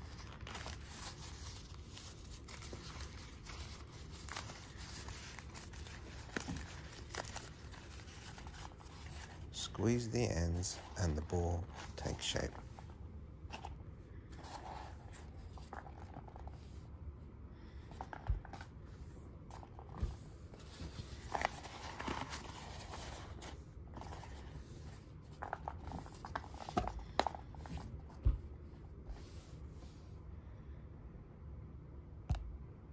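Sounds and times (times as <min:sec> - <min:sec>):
paper crinkling and rustling: 0:00.0 - 0:12.9, 0:19.5 - 0:28.3.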